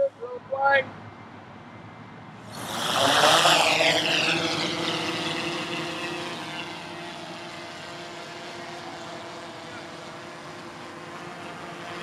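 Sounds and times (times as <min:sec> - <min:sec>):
drone rotors buzzing: 0:02.4 - 0:12.0.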